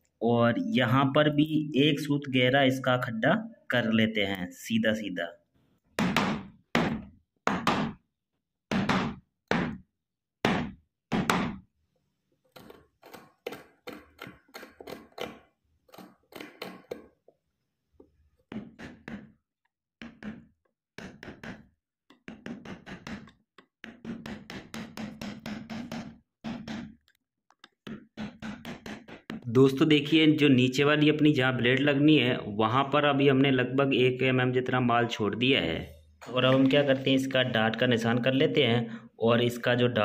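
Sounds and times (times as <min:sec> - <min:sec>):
wood chisel struck into wood: 0:21.0 - 0:29.5.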